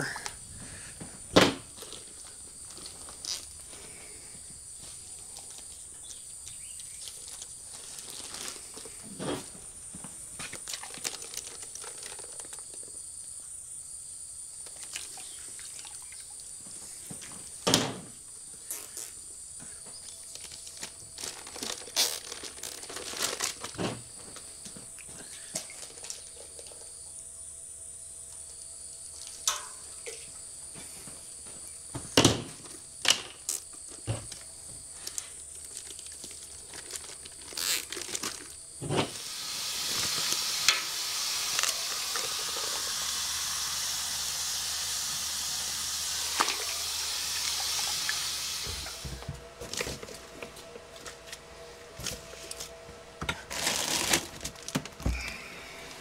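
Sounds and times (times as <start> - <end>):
steady hiss: 28.8 - 49.6.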